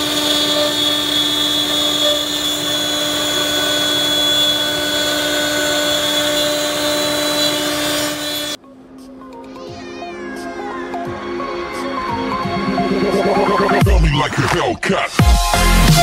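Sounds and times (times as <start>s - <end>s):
router spindles whining: 0.0s - 8.6s
wood cutting noise: 0.0s - 8.6s.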